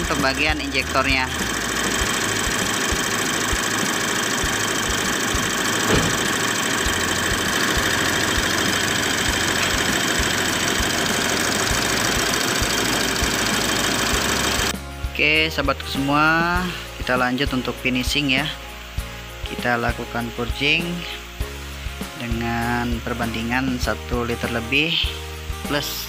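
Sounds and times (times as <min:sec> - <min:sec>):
diesel engine idling: 0:00.0 - 0:14.8.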